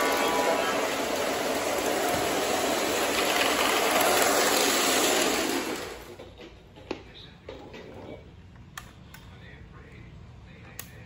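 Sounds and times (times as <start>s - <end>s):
model train rumbling on track: 0.0s - 6.2s.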